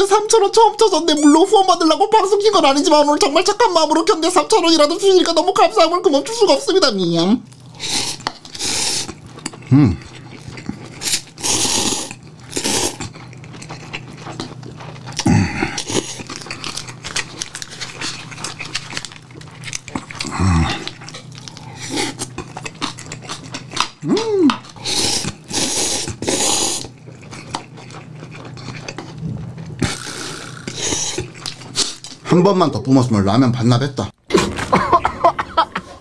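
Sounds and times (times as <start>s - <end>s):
chewing: 7.4s - 32.3s
person slurping noodles: 7.6s - 13.1s, 13.7s - 16.4s, 20.0s - 23.4s, 24.0s - 32.1s
short vocal noises: 9.7s - 10.0s.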